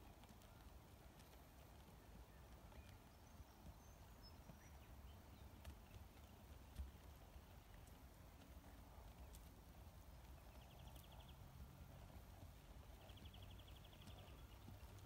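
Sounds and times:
faint hoofbeats on dirt: 0.0 - 15.0.

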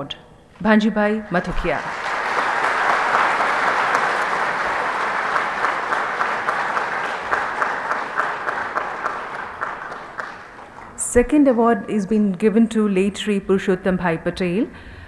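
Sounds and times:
audience applauding: 1.3 - 11.4.

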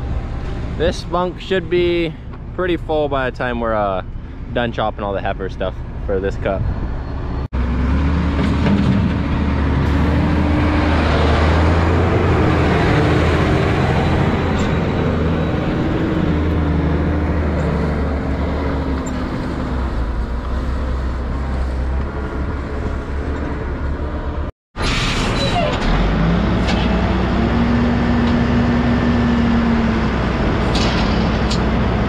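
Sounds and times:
tractor diesel engine running: 8.6 - 24.4.

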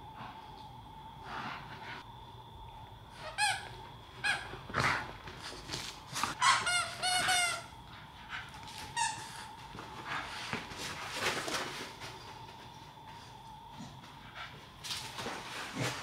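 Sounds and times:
dogs scuffling: 4.6 - 16.0
dog toy squeaking: 6.4 - 7.7.

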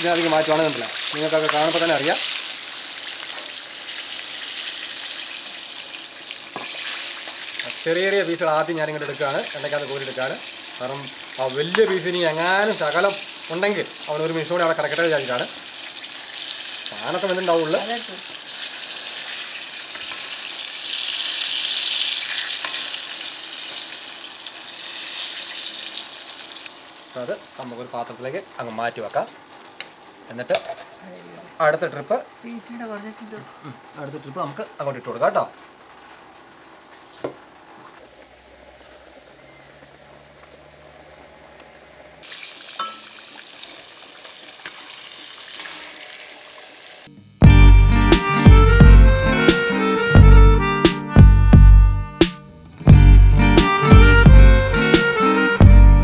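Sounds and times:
chicken deep-frying in oil: 0.0 - 30.6, 35.9 - 47.1.

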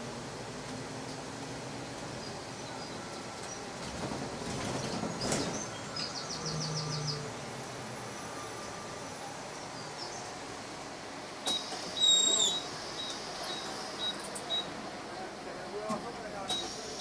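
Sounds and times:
bus ride noise: 0.0 - 17.0
hiss: 16.5 - 17.0.

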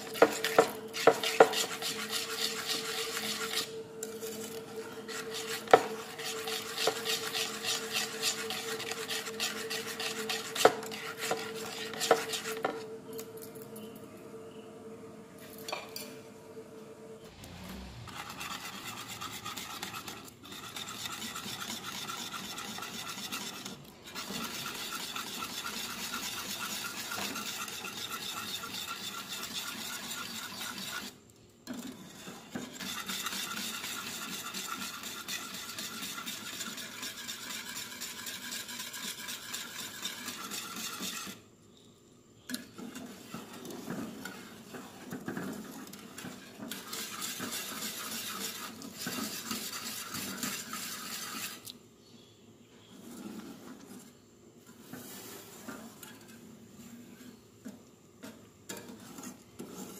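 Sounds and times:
wire whisk scraping metal pot: 0.0 - 12.8, 18.0 - 41.5, 42.6 - 51.7, 58.2 - 59.9.

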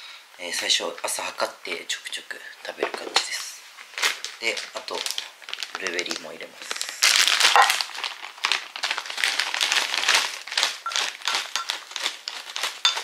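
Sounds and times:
plastic bag crinkling: 2.7 - 13.0.

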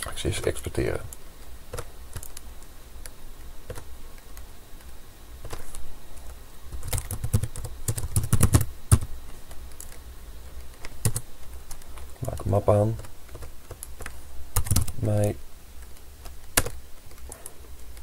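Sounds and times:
keyboard keystrokes clicking: 6.7 - 9.1, 10.7 - 15.0, 15.8 - 18.0.

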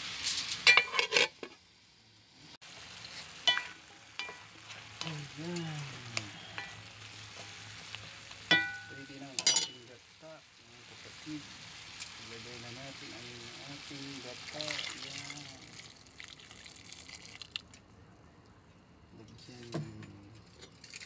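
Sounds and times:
vegetables sauteing in a pot: 0.0 - 17.8
metal spoon clinking on a pot: 0.6 - 1.3, 3.4 - 4.5, 8.5 - 9.8.

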